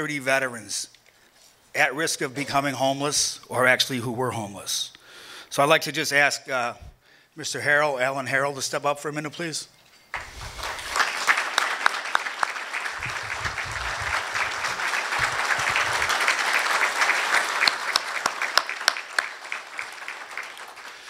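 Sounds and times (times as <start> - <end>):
audience applauding: 10.1 - 21.0.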